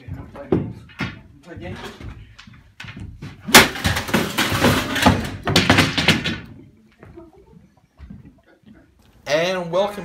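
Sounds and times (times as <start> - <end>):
wooden props banging and clattering: 0.0 - 6.8.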